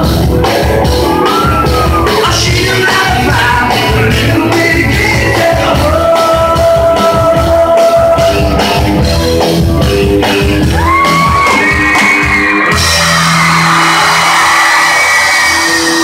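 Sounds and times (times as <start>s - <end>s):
rockabilly band playing: 0.0s - 16.0s
crowd shouting: 10.6s - 16.0s.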